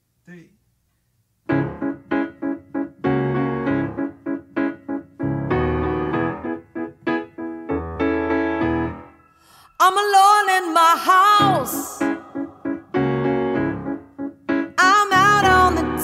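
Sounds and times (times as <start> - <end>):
solo piano: 1.5 - 9.4, 11.4 - 16.0.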